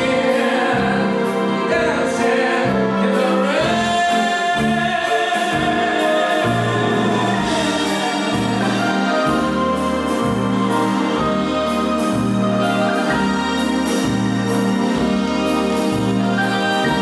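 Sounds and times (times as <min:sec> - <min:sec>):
person singing: 0:00.0 - 0:11.2
bass notes: 0:00.0 - 0:17.0
swing band playing: 0:00.0 - 0:17.0.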